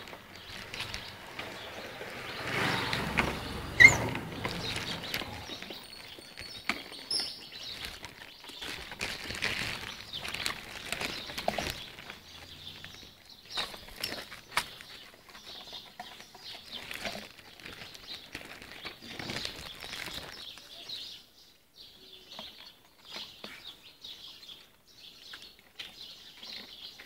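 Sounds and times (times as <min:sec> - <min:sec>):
high chirps: 0:02.8 - 0:06.5
puppies chewing and lapping: 0:02.8 - 0:20.1.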